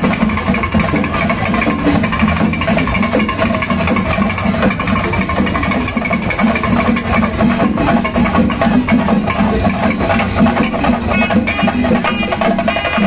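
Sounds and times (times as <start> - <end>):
loud music with steady drumming: 0.0 - 13.0.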